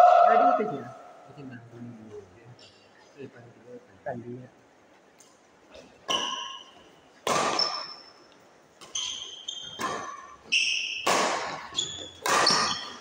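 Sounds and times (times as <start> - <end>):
racket striking shuttlecock: 6.0 - 8.0, 8.8 - 13.0
sneakers squeaking on court floor: 6.0 - 8.2, 8.8 - 13.0.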